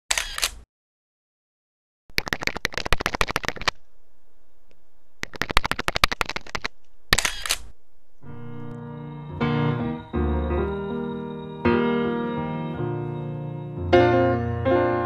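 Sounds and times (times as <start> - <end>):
faint steady hum: 3.7 - 5.4, 6.7 - 9.3
rapid mechanical clicking: 5.2 - 7.6.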